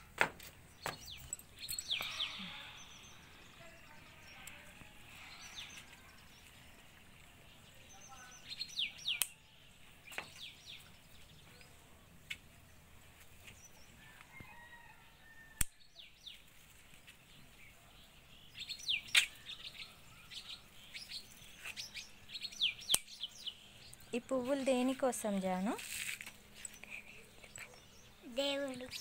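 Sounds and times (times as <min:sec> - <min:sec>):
small birds chirping: 0:00.0 - 0:29.0
garden scissors snipping: 0:09.0 - 0:09.4, 0:15.6 - 0:15.8, 0:22.8 - 0:23.3.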